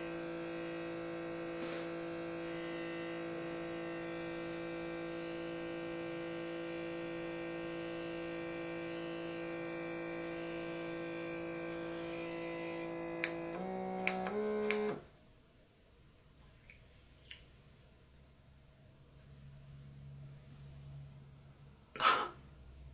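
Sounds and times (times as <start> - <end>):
pump motor humming: 0.0 - 15.0
clicks: 13.2 - 15.0.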